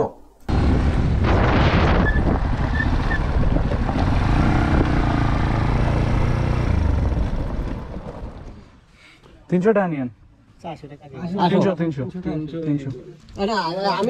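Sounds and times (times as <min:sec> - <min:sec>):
wind rush on microphone: 0:00.5 - 0:05.3.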